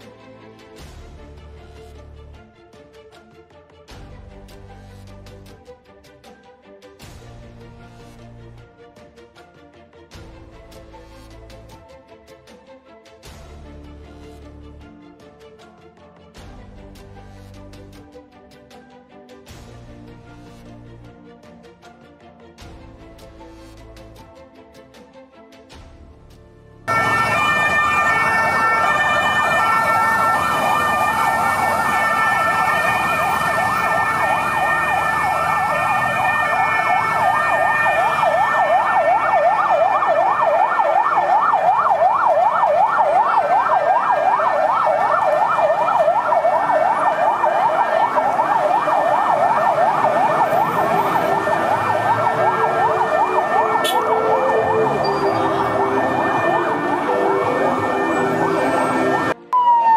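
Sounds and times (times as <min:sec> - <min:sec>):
sirens yelping and wailing: 0:26.9 - 0:59.9.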